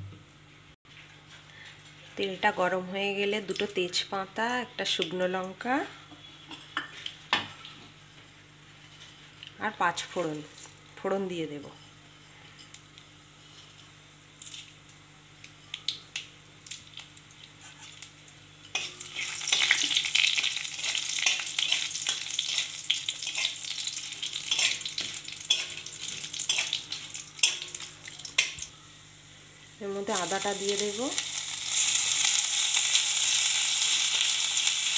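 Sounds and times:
spices sizzling in hot oil: 0:08.8 - 0:34.9
metal spatula stirring: 0:18.6 - 0:28.6.

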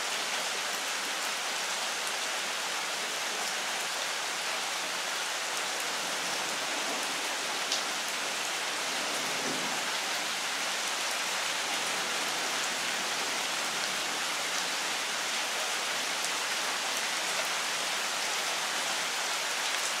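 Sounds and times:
rain on leaves: 0:00.0 - 0:20.0.

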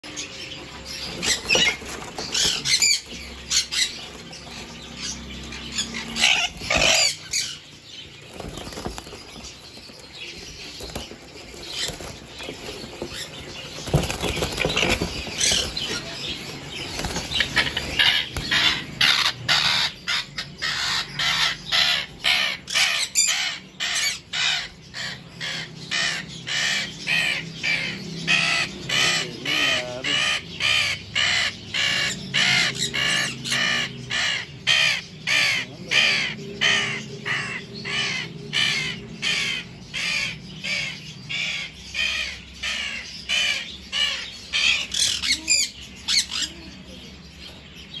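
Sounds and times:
parakeet squawking harshly: 0:05.0 - 0:07.7, 0:17.4 - 0:46.5.

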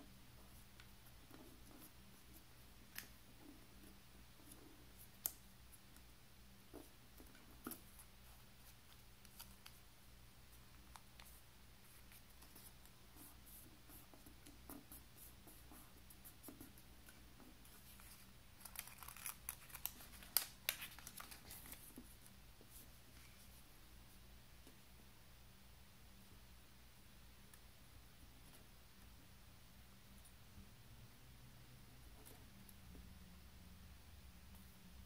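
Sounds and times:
paper folding and rustling: 0:17.0 - 0:22.1
paper crinkles and taps: 0:17.9 - 0:22.1.

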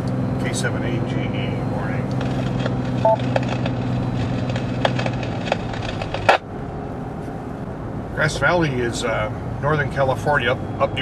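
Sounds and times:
car road drone: 0:00.0 - 0:11.0
radio static with clicks: 0:02.0 - 0:06.5.

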